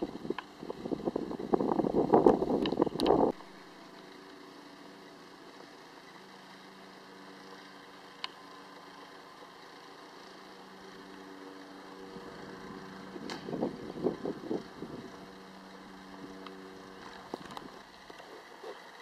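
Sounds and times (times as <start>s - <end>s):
wind buffeting microphone: 0.0s - 3.4s, 13.1s - 15.3s
faint steady hum: 0.0s - 19.0s.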